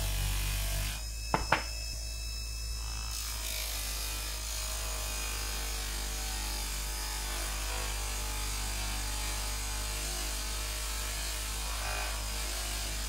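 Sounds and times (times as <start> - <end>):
bench polishing motor running: 0.0 - 1.7.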